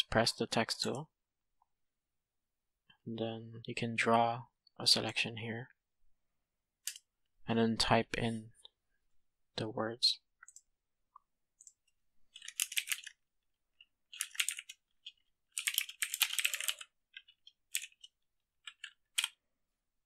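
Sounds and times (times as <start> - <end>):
computer keyboard typing: 11.6 - 19.4.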